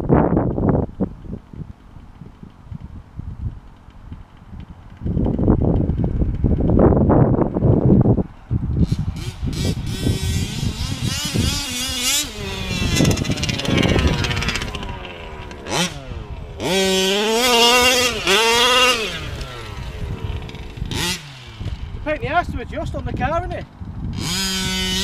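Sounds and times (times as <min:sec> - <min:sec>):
two-stroke engine revving: 0:08.8 - 0:25.0.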